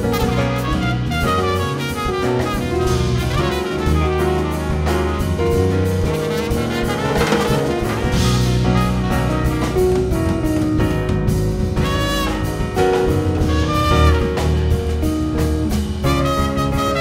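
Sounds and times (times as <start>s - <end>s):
small jazz band playing: 0.0s - 17.0s.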